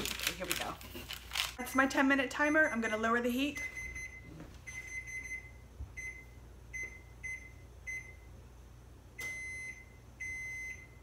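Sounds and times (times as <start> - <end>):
oven control panel beeping: 9.2 - 11.0.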